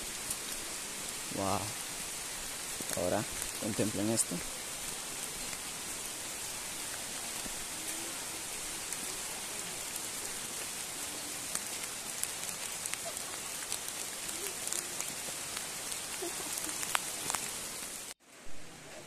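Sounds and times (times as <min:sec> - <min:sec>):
waterfall hissing: 0:00.0 - 0:18.2
small ticks: 0:16.0 - 0:17.6.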